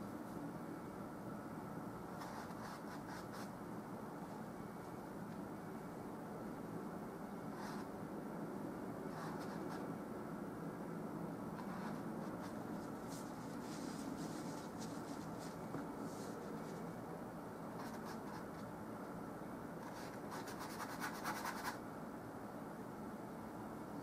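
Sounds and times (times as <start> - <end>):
steady low hiss: 0.0 - 24.0
brush strokes scratching canvas: 2.2 - 3.5, 7.6 - 7.9, 11.6 - 17.0.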